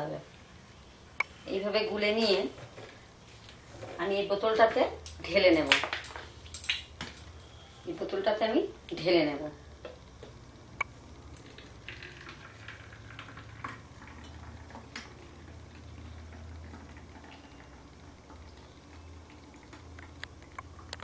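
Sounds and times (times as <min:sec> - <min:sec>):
batter trickling into bottle: 0:11.4 - 0:14.8.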